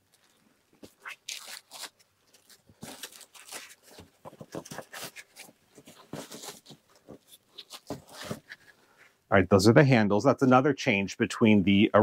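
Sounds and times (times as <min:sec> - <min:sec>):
styrofoam scraping and squeaking: 0:00.9 - 0:08.7.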